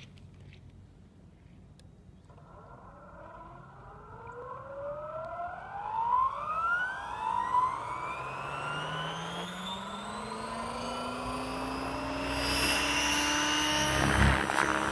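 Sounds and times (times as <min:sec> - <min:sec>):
model helicopter whine rising: 0:02.3 - 0:14.9.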